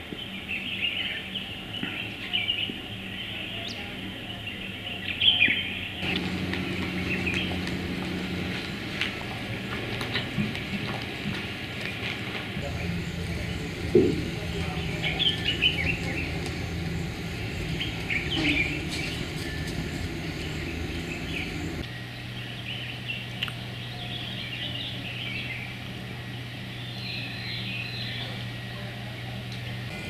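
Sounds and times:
birds chirping: 0.0s - 30.0s
low motor hum: 6.0s - 30.0s.

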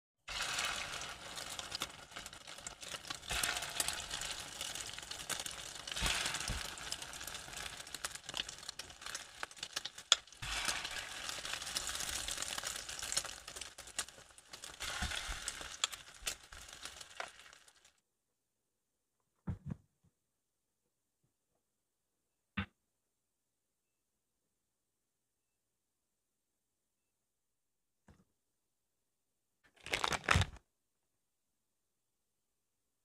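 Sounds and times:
sausage sizzling in a pan: 0.3s - 18.0s.

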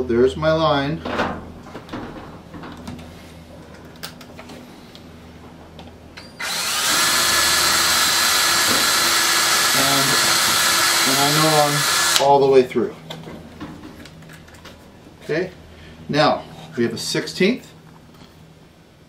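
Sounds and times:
electric drill whining: 6.4s - 12.3s.

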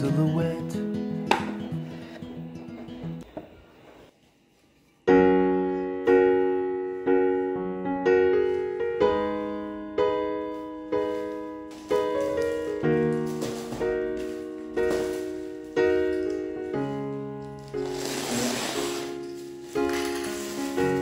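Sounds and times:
piano chords ringing: 5.0s - 21.0s.

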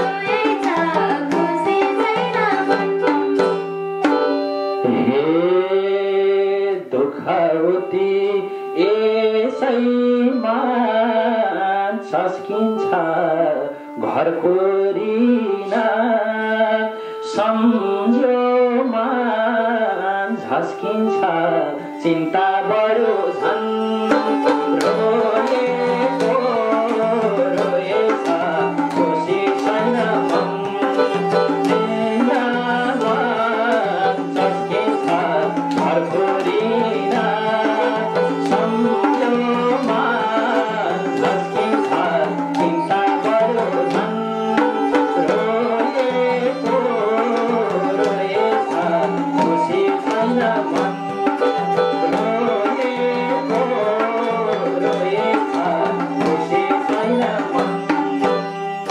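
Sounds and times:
hand drum beat: 0.0s - 5.2s, 23.2s - 58.9s
keyboard melody: 0.0s - 6.7s, 20.8s - 56.7s
person singing: 0.0s - 58.9s.

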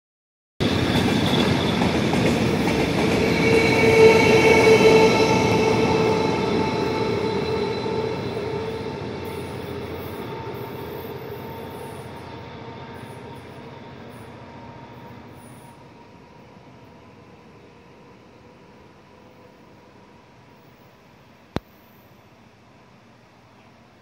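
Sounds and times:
freight train wagons rumbling: 0.6s - 15.4s
high whine: 0.6s - 16.3s.

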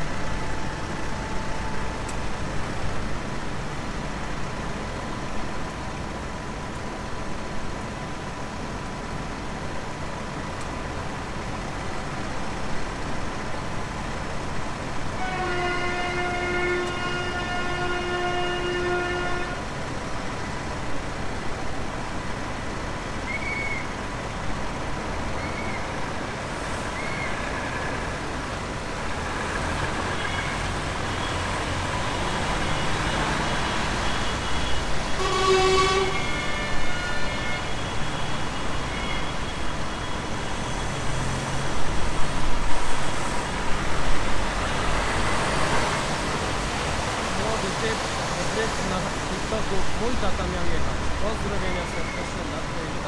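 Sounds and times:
lorries and tractors passing: 0.0s - 53.0s
vehicle horn: 15.2s - 19.7s, 32.7s - 40.8s.

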